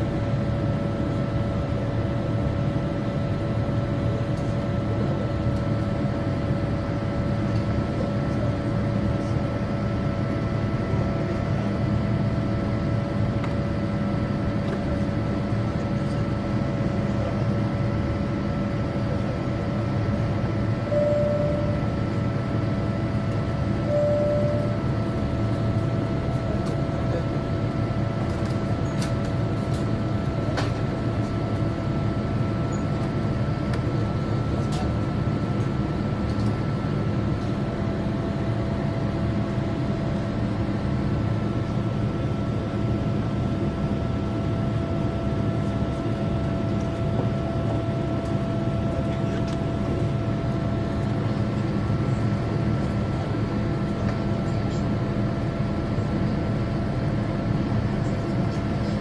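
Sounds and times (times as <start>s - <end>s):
constant tonal hum: 0.0s - 59.0s
short beeps: 20.8s - 22.0s, 23.8s - 24.9s.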